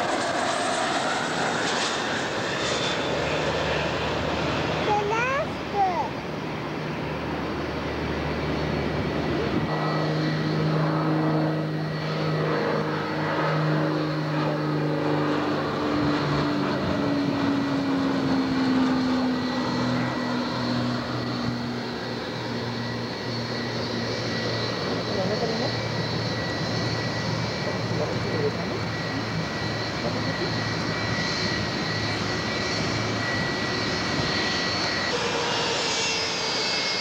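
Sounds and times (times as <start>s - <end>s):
distant jet airliner rumbling: 0.0s - 37.0s
propeller plane engine drone: 0.0s - 37.0s.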